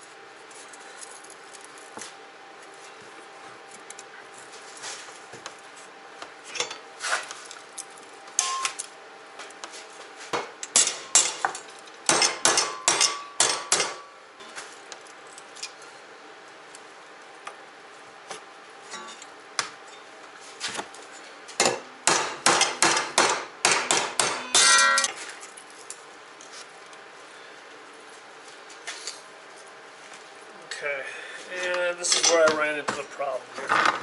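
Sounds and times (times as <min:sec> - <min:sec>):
sharp metal strikes: 0:12.1 - 0:14.0, 0:21.6 - 0:25.2.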